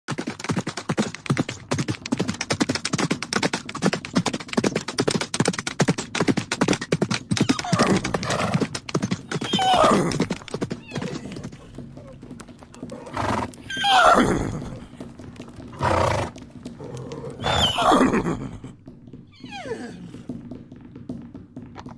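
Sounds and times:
horse hooves clattering: 0.1 - 21.9
horse neighing: 7.4 - 12.2, 12.8 - 15.0, 15.6 - 18.8, 19.4 - 20.3.

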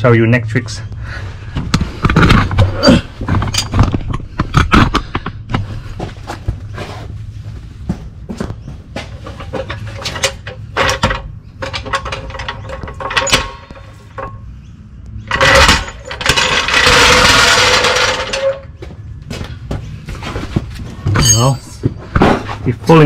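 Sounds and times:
jack wheels scraping across concrete: 9.0 - 14.5, 15.2 - 21.5
metal clicks and knocks: 9.2 - 18.8.

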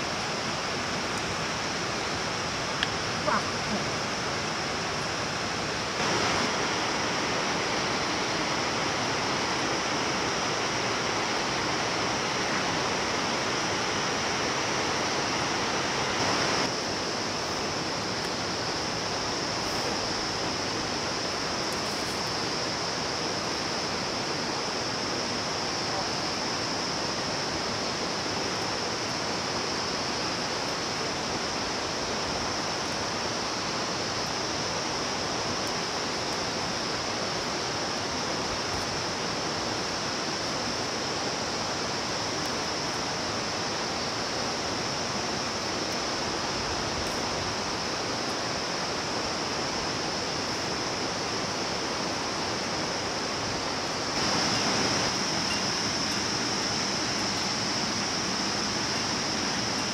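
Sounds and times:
high-pitched hiss: 0.0 - 59.9
rushing noise: 4.0 - 21.6, 47.4 - 59.9.

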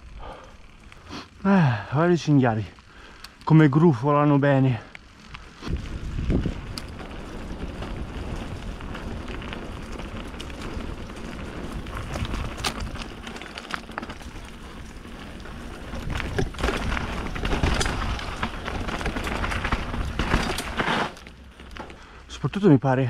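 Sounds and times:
bike clicks and knocks: 5.0 - 22.2.

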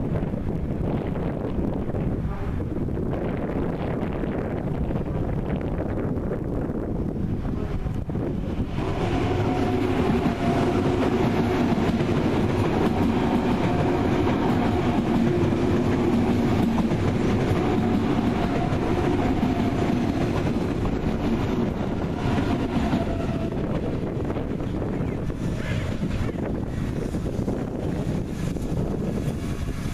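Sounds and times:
train rumbling: 0.0 - 29.9
train wheel clatter: 7.6 - 29.9.

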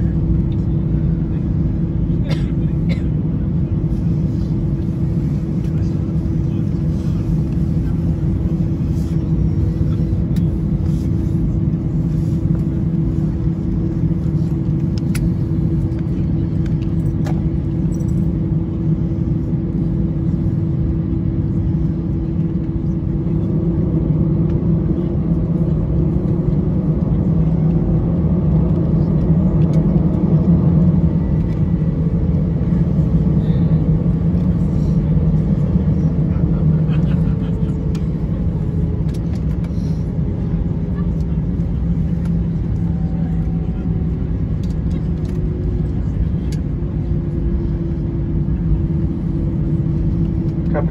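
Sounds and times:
airliner cabin rumble while taxiing: 0.0 - 50.9.

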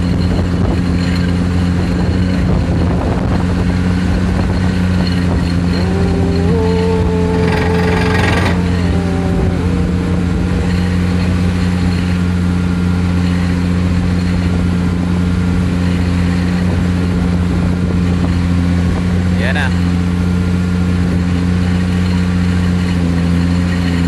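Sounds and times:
high-pitched whine: 0.0 - 16.6
pile hammer low drone: 0.0 - 24.0.

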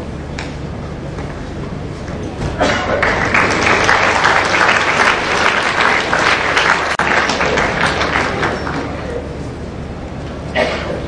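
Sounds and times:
audience applauding: 2.9 - 9.3.

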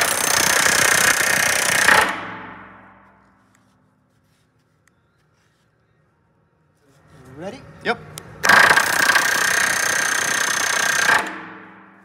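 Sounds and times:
rivet gun hammering: 8.4 - 11.9.

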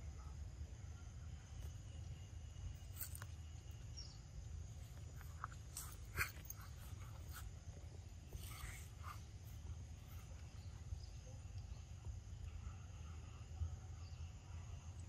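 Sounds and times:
low outdoor rumble: 0.0 - 15.0
monkeys chewing fruit: 2.7 - 11.6.

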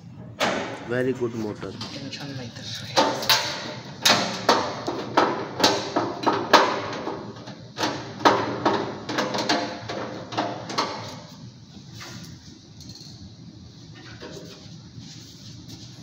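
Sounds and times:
metallic clanks and knocks: 3.0 - 11.3.

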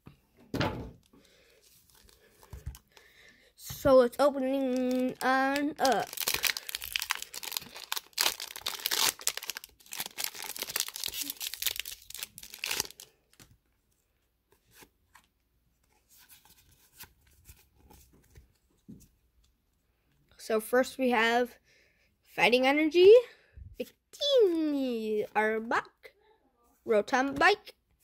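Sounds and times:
cards rustling: 1.3 - 3.2, 4.2 - 13.5
foil wrapper tearing and crinkling: 4.6 - 13.5.

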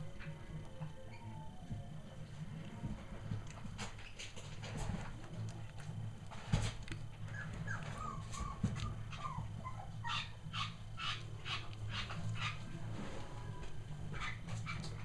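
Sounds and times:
puppies squeaking and whimpering: 7.2 - 13.1, 14.1 - 15.0
puppy yips: 7.3 - 12.6.

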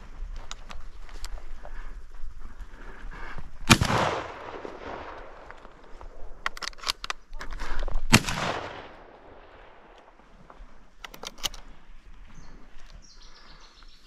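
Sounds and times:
shotgun shots echoing: 3.7 - 6.4, 8.1 - 10.2.

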